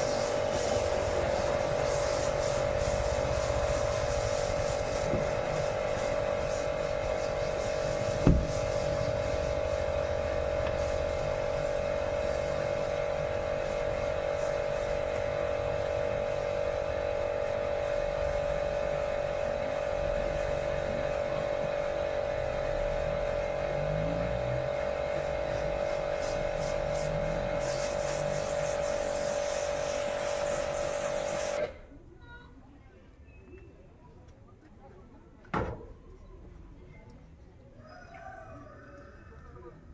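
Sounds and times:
water jet hissing: 0:00.0 - 0:31.8
pressure washer motor hum: 0:00.0 - 0:31.9
short knock: 0:08.2 - 0:08.5.

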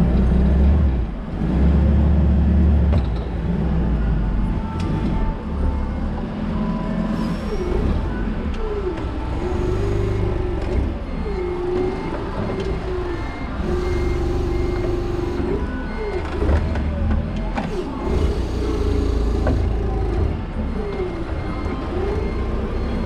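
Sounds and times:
forklift motor whine: 0:00.0 - 0:23.0
faint short beeps: 0:11.2 - 0:16.5.

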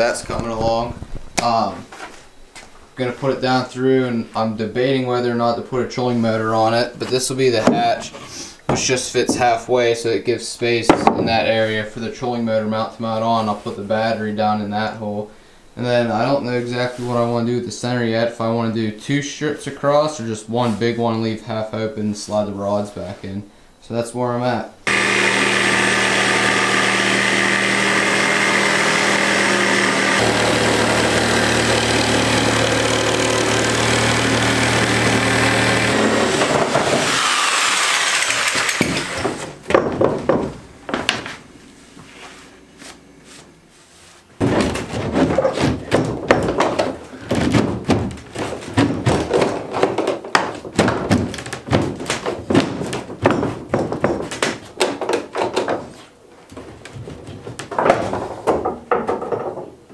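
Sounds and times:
panels knocking and clattering: 0:07.0 - 0:09.6, 0:10.8 - 0:11.6, 0:24.9 - 0:37.2, 0:38.3 - 0:41.4, 0:44.4 - 0:59.9
power saw running: 0:24.9 - 0:39.5.

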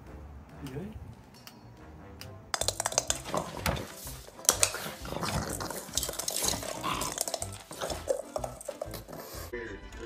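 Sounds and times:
ball rolling on tile floor: 0:02.5 - 0:09.5.

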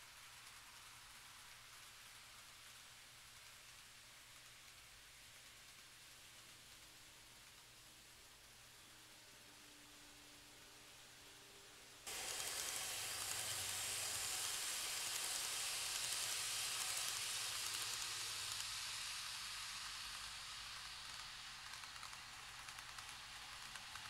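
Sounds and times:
model train rolling hiss: 0:00.0 - 0:24.0.

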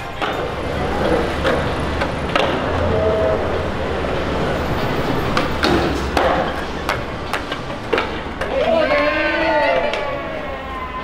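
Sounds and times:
skateboard clacks: 0:00.0 - 0:10.2
skateboard wheels rolling on concrete: 0:00.0 - 0:11.0.

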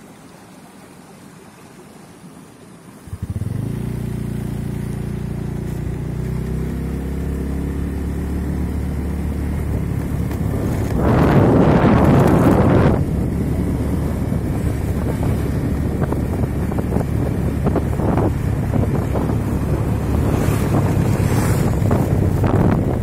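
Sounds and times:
motorcycle engine running: 0:03.0 - 0:23.0
wind on microphone: 0:08.7 - 0:23.0.

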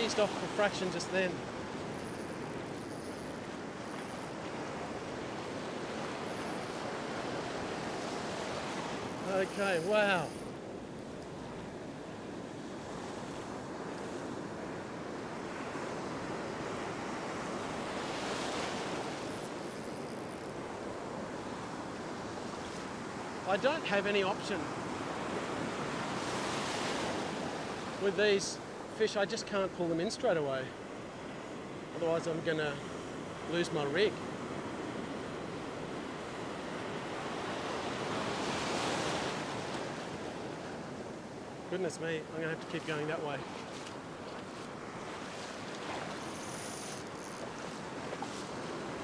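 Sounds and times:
ocean surf breaking: 0:00.0 - 0:10.6, 0:30.6 - 0:49.0.

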